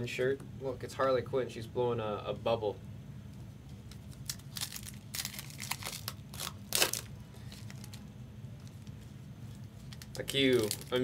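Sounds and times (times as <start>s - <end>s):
wrapper crinkling and tearing: 3.9s - 8.9s, 9.5s - 11.0s.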